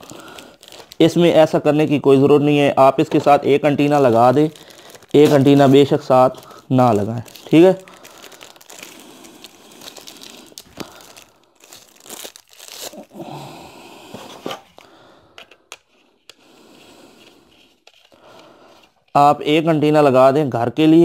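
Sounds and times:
plastic packaging crinkling: 0.0s - 2.0s, 2.8s - 13.4s.

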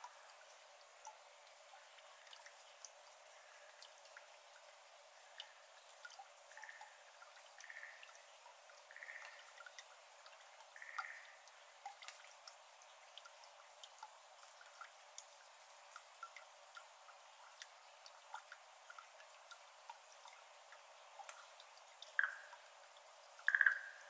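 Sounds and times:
light steady hiss: 0.0s - 24.0s
water drops into shallow water: 2.2s - 16.9s, 17.5s - 22.8s, 23.4s - 24.0s.

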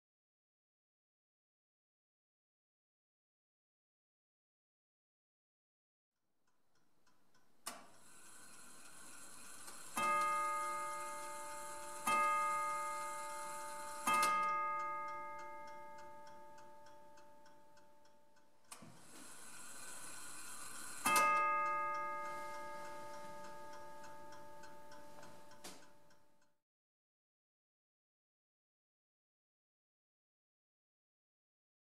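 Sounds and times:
clock ticking: 6.8s - 26.6s
clock striking a gong: 9.5s - 17.7s, 20.7s - 26.0s.

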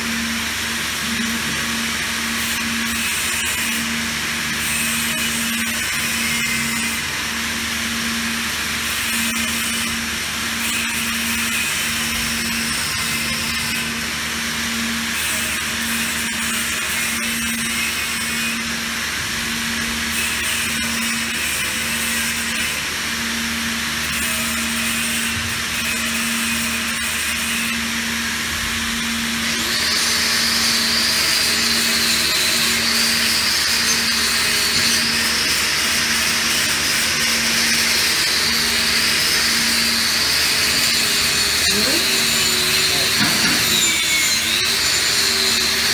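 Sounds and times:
angle grinder whining on steel: 0.0s - 45.9s.

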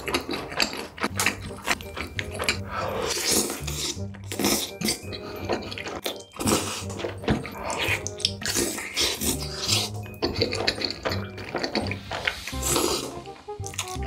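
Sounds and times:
wet chewing and slurping: 0.0s - 14.0s
background music with bass: 9.3s - 14.0s.

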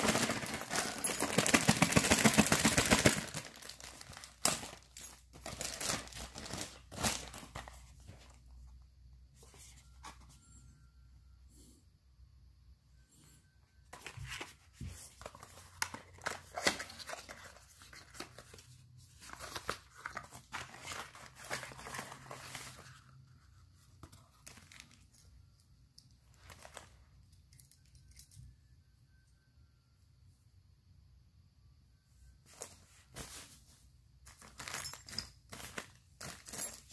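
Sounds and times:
cardboard box rustling and crinkling: 0.0s - 8.4s, 19.2s - 23.0s
faint handling noises: 32.4s - 36.9s.

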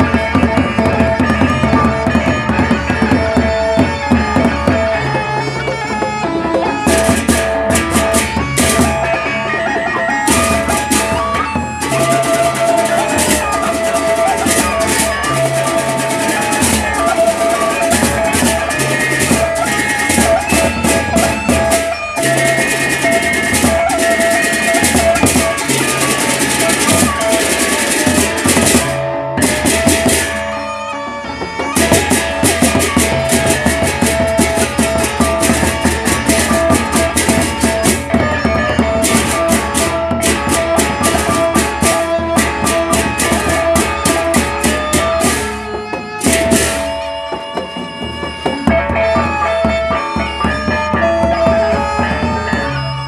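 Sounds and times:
barrel drums beaten with sticks: 9.9s - 30.5s, 31.6s - 52.3s.

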